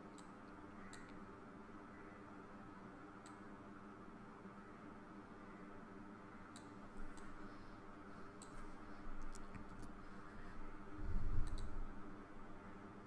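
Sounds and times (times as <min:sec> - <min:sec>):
computer mouse clicking: 0:00.0 - 0:01.2, 0:06.5 - 0:07.3, 0:08.4 - 0:08.6, 0:11.4 - 0:11.8
low electrical hum: 0:00.0 - 0:13.0.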